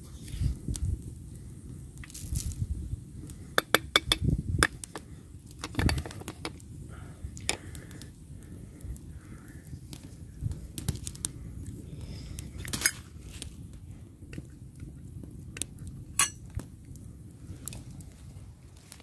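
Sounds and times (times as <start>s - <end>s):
wooden spoon tapping metal: 3.6s - 4.8s
metal cookware clinking: 16.2s - 16.4s.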